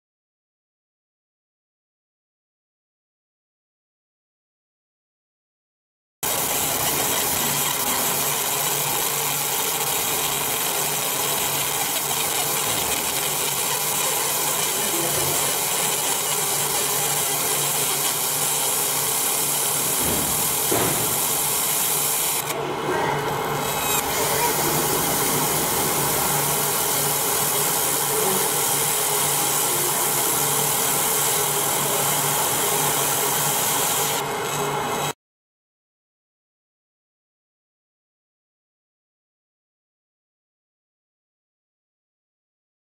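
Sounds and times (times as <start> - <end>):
laser engraving hiss: 6.2 - 22.6, 23.3 - 35.1
low machine hum: 10.0 - 33.3.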